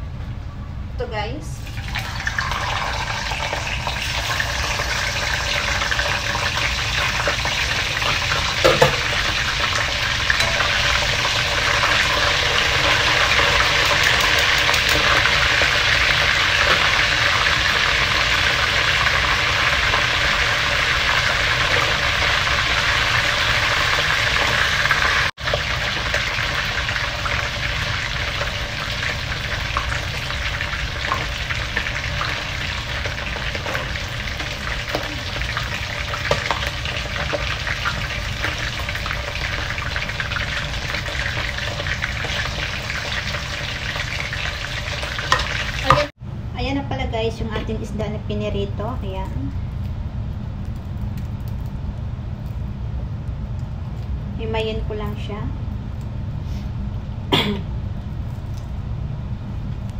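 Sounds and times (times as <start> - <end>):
fish sizzling in hot oil: 1.6 - 46.2.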